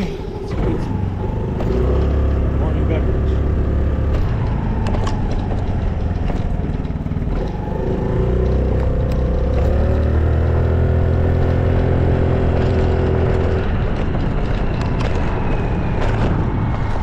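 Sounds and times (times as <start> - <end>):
small motorbike engine running: 0.5 - 17.0.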